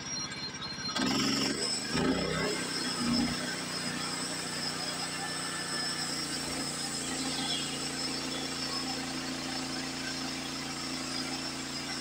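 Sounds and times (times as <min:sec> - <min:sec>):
sawmill engine running: 0:00.9 - 0:12.0.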